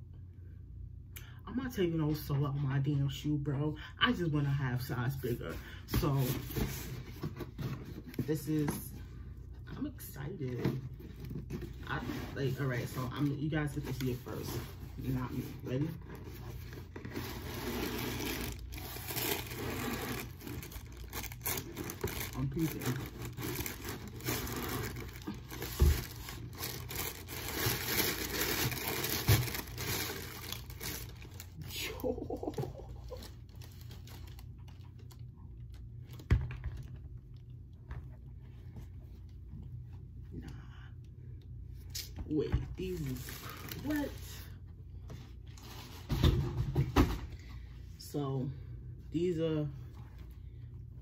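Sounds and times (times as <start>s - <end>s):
cardboard box scraping and rustling: 13.9s - 30.3s.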